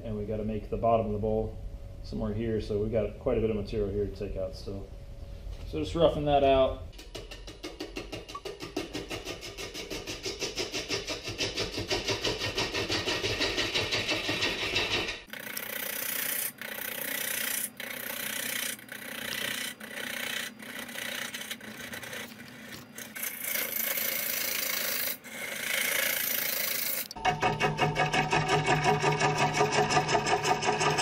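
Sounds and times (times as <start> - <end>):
rhythmic knocking of interrupted cut: 6.9 - 15.3, 23.1 - 31.0
lathe tool scraping wood: 9.3 - 31.0.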